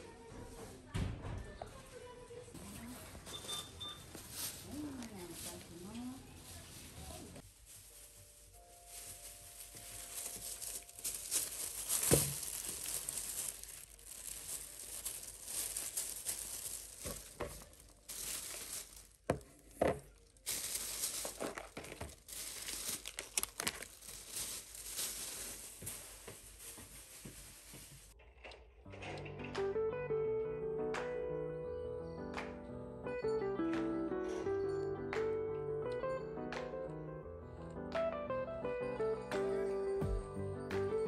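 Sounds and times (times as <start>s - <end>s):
crinkling and rustling: 0.1s - 28.6s.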